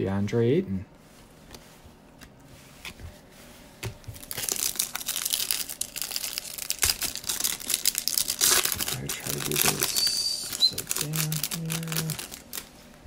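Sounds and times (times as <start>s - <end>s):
plastic wrapper crinkling: 3.9s - 13.0s.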